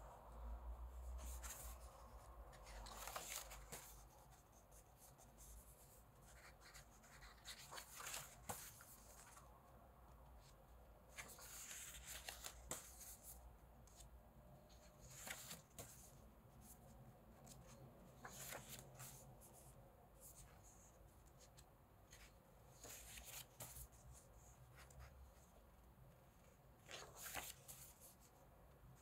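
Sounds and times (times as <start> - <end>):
pages turning: 2.6 - 4.1, 6.3 - 9.4, 11.1 - 13.3, 15.0 - 16.1, 17.4 - 19.2, 22.1 - 24.0, 26.8 - 28.2.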